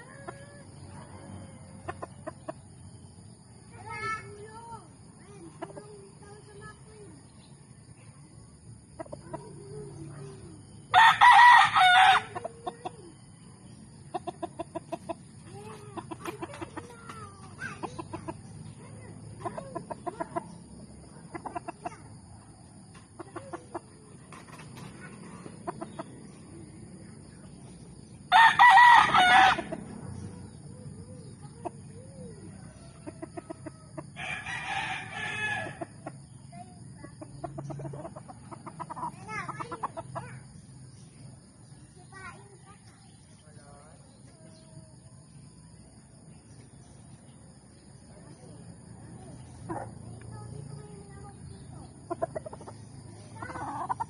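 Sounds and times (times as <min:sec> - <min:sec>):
chickens clucking: 0:00.0 - 0:11.0, 0:11.8 - 0:54.0
rooster crowing: 0:10.9 - 0:12.6, 0:28.3 - 0:29.9, 0:32.2 - 0:36.0.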